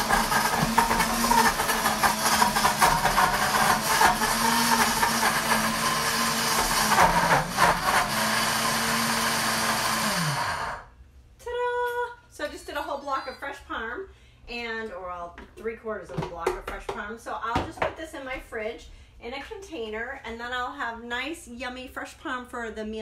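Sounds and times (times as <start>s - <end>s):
cheese chunks clattering in blender: 0.0s - 8.5s
blender motor running: 0.0s - 10.9s.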